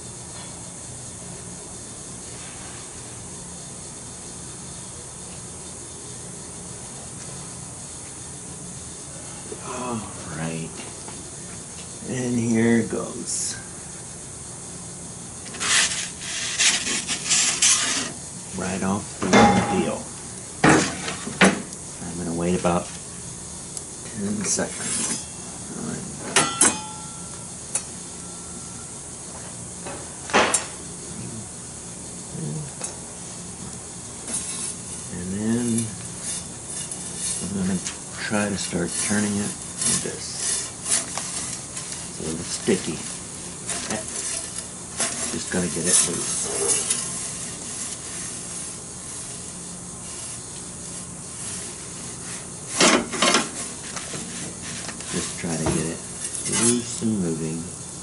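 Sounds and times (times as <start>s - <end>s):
gas burner hiss: 0.0s - 58.0s
metal pizza peel clanking: 15.5s - 18.2s, 19.2s - 20.0s, 24.8s - 25.4s, 26.4s - 27.4s, 35.7s - 38.0s, 38.6s - 48.7s, 56.2s - 57.0s
scraping clatter: 38.9s - 48.7s.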